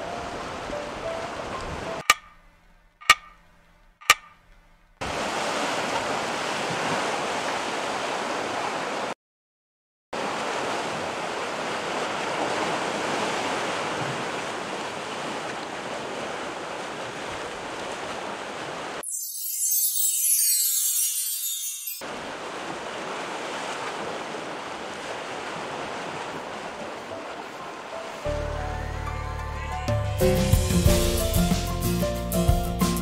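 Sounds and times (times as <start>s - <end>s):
sharp clicks: 2.0s - 4.7s
sea surf rushing: 5.0s - 9.2s, 20.0s - 29.0s.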